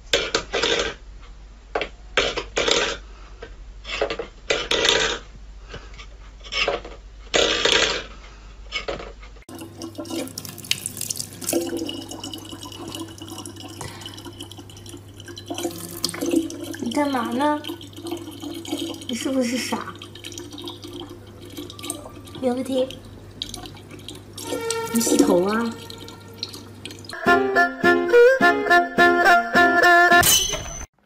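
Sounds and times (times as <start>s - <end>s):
steady hum: 9.5s - 27.2s
water running into plastic bottle: 9.5s - 27.2s.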